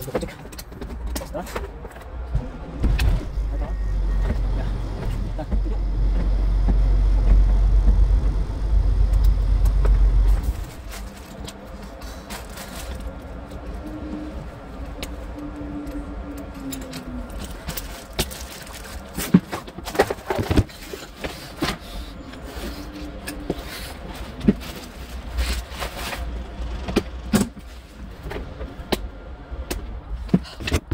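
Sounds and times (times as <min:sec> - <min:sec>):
low rumble: 0:02.0 - 0:18.8
faint hum: 0:02.1 - 0:17.8.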